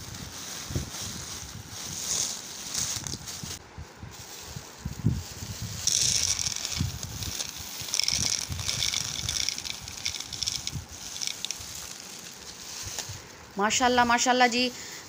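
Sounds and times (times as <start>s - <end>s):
plastic bag crinkling: 4.2s - 13.2s
candy pattering on metal tray: 5.9s - 13.1s.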